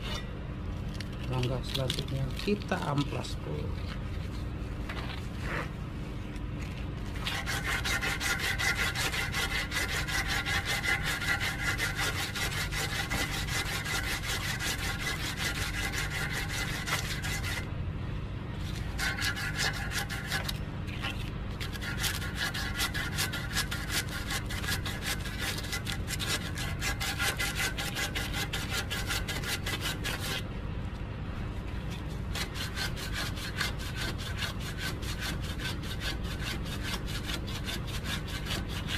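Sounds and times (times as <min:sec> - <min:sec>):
sandpaper scratching on metal rod: 0:07.2 - 0:17.6, 0:18.6 - 0:30.4, 0:31.9 - 0:38.9.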